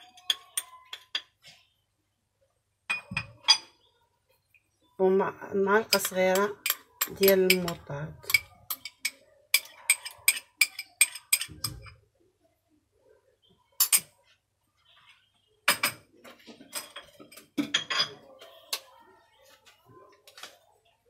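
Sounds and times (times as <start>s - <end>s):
teaspoon clinking against cup: 5.9s - 11.9s.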